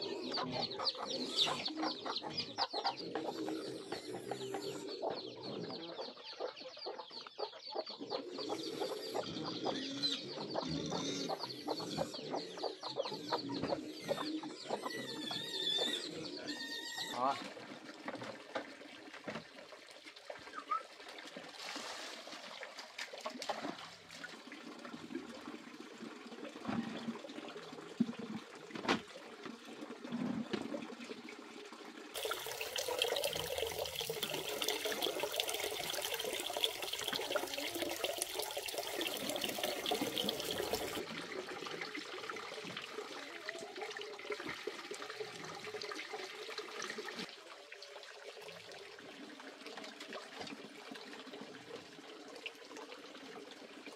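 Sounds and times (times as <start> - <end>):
water splashing and sloshing: 17.2 - 31.4, 32.1 - 53.9.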